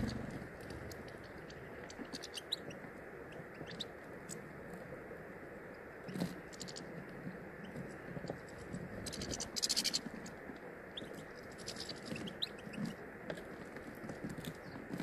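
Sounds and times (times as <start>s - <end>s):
beaks clicking and scratching seeds: 0.0s - 4.4s, 6.1s - 6.9s, 7.7s - 10.4s, 11.0s - 15.0s
birds chirping: 0.0s - 15.0s.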